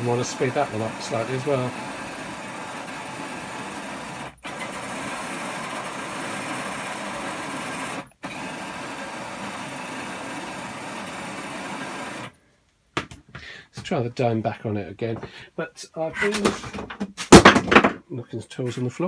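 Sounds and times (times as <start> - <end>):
motor and gears whirring: 0.0 - 12.3.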